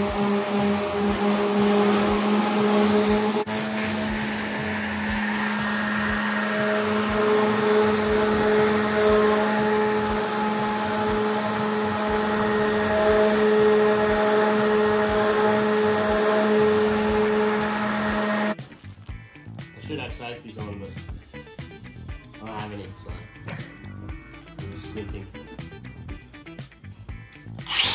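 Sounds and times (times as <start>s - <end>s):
orbital sander running: 0.0s - 18.6s, 27.7s - 27.9s.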